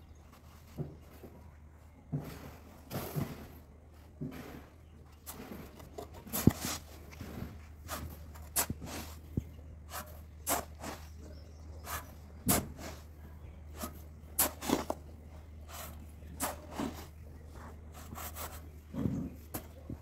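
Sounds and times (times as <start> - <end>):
shovel scraping sand: 2.2 - 3.6, 4.2 - 13.1, 13.7 - 20.0
sand tipping into metal wheelbarrow: 4.3 - 11.2, 11.8 - 13.1, 13.7 - 17.2.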